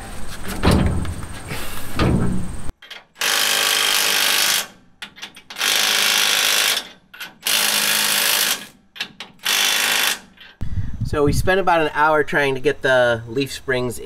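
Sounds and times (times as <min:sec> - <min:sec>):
impact wrench hammering bolts: 0:02.0 - 0:10.6.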